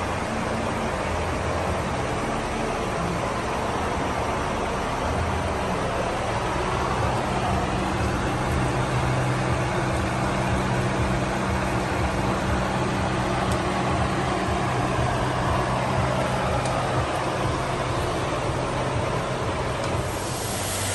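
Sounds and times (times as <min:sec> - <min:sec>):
constant hiss: 0:00.0 - 0:20.9
low mechanical drone: 0:00.0 - 0:20.9.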